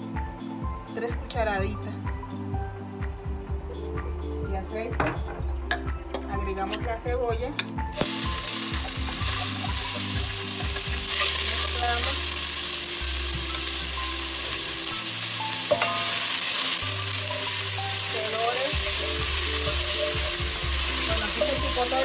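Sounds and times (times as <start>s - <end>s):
onion sizzling in hot oil: 7.9s - 22.0s.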